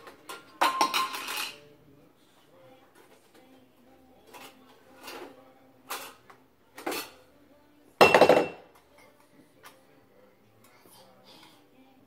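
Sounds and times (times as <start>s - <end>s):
glass jars and metal lids clinking: 0.3s - 1.6s, 8.0s - 8.6s.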